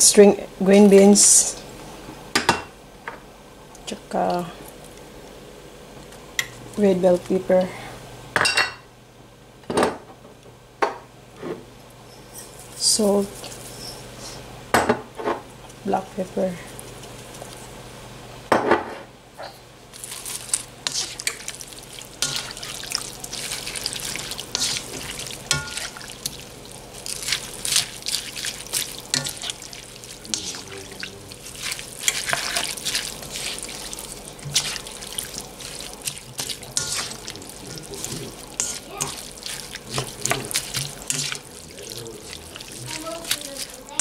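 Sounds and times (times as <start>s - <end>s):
spatula scraping wok: 20.0s - 44.0s.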